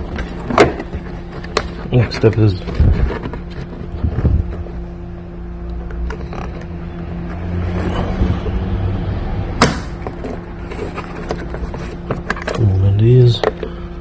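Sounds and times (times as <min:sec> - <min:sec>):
steady low hum: 0:00.0 - 0:14.0
rubber caps creaking and rubbing: 0:05.9 - 0:06.8
sharp plastic snap: 0:09.6 - 0:10.0.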